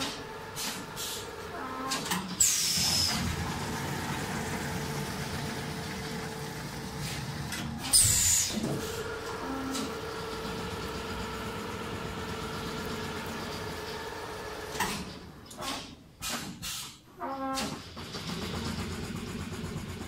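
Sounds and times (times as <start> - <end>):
quilting machine humming: 2.8 - 15.4
hiss of released air: 16.2 - 17.0.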